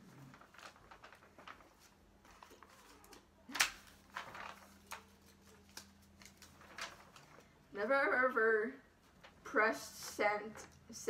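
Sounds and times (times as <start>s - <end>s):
paper rustling: 0.0s - 7.6s.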